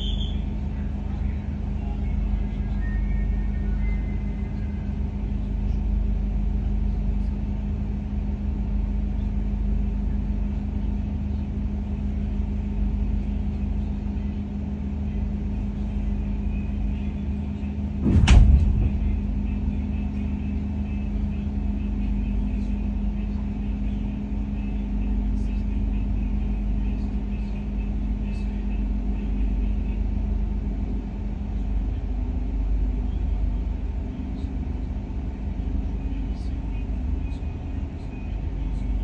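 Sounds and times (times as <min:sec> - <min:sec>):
train cabin hum: 0:00.0 - 0:39.0
loud thump: 0:18.0 - 0:19.4.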